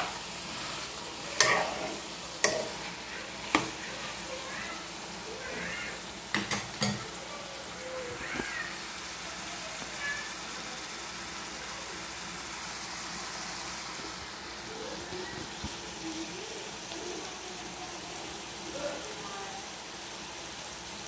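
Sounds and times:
vegetables sizzling in oil: 0:00.0 - 0:21.0.

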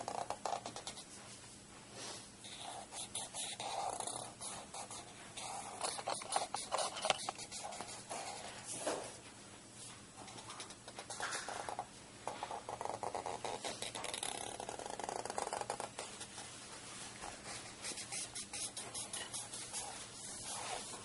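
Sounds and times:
marker scratching on paper: 0:00.0 - 0:01.1, 0:02.4 - 0:09.0, 0:10.3 - 0:16.6, 0:17.2 - 0:21.0.

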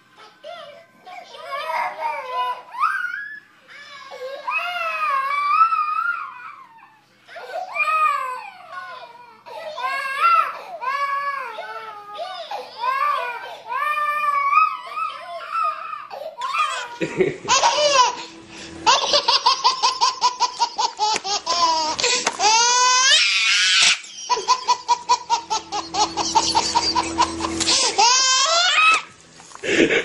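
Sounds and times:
baby laughing: 0:16.4 - 0:29.1.

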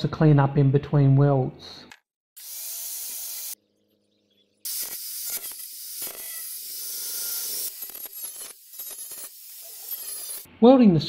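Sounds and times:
angle grinder on metal: 0:02.4 - 0:03.6, 0:04.6 - 0:10.5.

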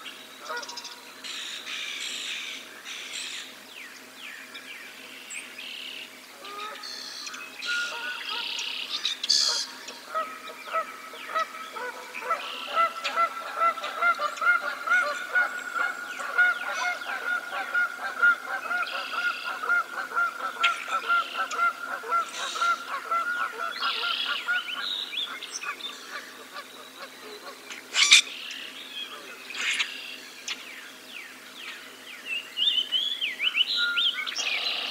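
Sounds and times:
songbirds chirping and trilling: 0:00.0 - 0:34.9
geese honking: 0:07.7 - 0:28.2.

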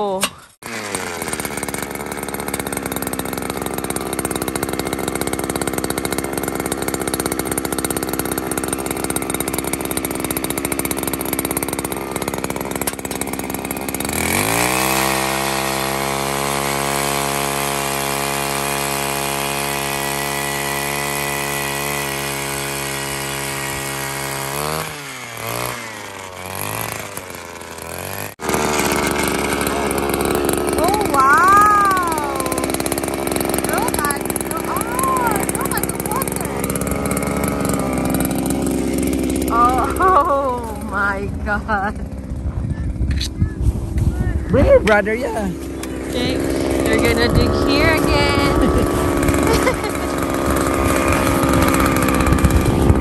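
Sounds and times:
auger engine revving: 0:00.0 - 0:53.0
ice auger engine grinding: 0:00.0 - 0:53.0.

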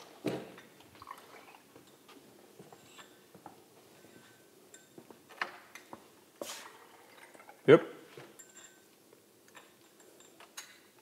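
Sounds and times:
glassware clinking: 0:08.3 - 0:08.9.

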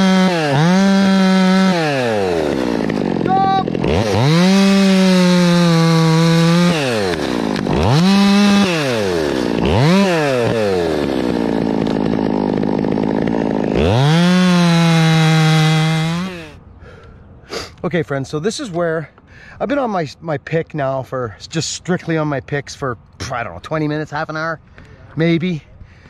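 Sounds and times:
chainsaw revving while cutting: 0:00.0 - 0:16.6.

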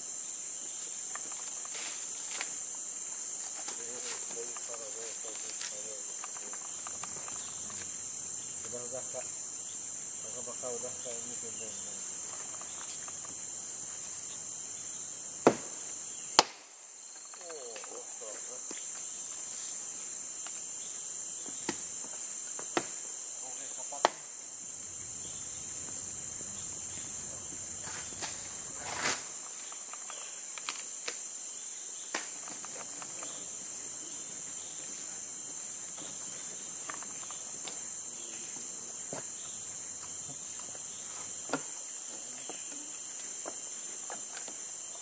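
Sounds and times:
insect chorus drone: 0:00.0 - 0:45.0
sharp snaps and knocks: 0:04.4 - 0:07.9, 0:15.4 - 0:18.0, 0:21.6 - 0:23.0, 0:24.0 - 0:24.3, 0:27.8 - 0:31.2, 0:32.1 - 0:33.4.

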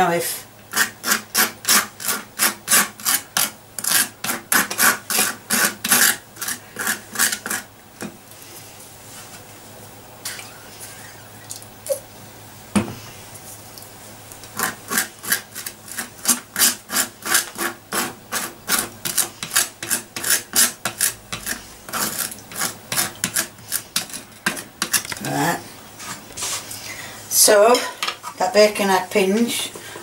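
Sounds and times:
knife scraping across dry toast: 0:00.7 - 0:07.7, 0:14.6 - 0:25.4.

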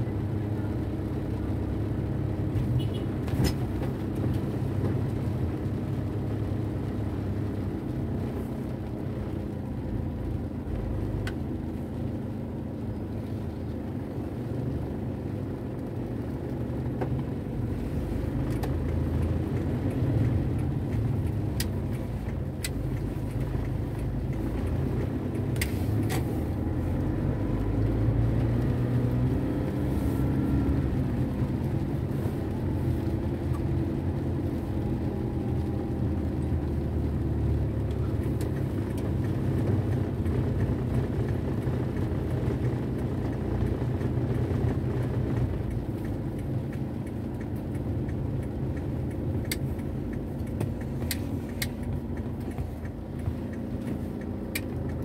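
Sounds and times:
car engine rumble: 0:00.0 - 0:55.0
tyres on wet road: 0:00.0 - 0:55.0
sharp ticks: 0:45.7 - 0:55.0.

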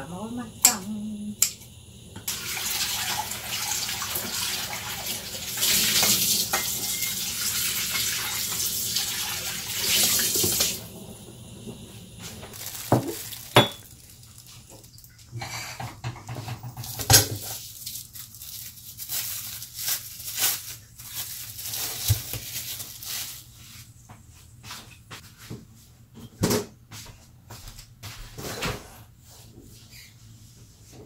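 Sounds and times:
tap running into sink: 0:02.2 - 0:10.8.

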